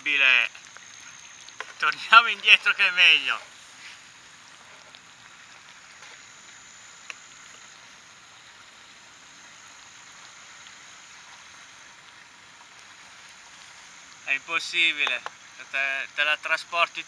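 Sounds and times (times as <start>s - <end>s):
thin high whine: 0.0s - 11.8s
faint outdoor hiss: 0.0s - 17.0s.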